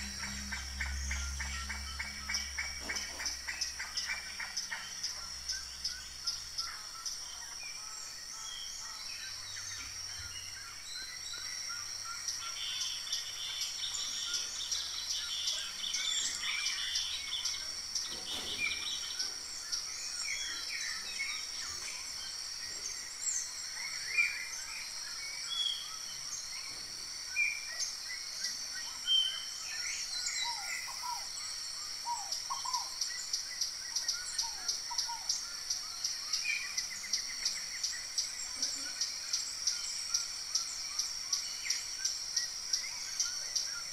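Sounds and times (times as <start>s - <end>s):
high-pitched insect trill: 0.0s - 43.9s
bird chirps and calls: 8.0s - 24.7s.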